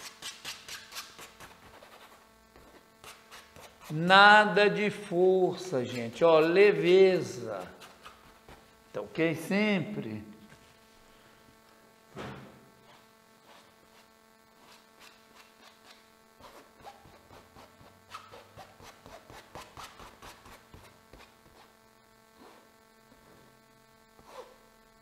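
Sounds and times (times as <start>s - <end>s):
palette knife scraping paint: 0.0s - 4.1s, 5.5s - 8.8s, 12.8s - 21.8s, 22.4s - 22.7s, 24.2s - 24.6s
electrical hum: 0.0s - 25.0s.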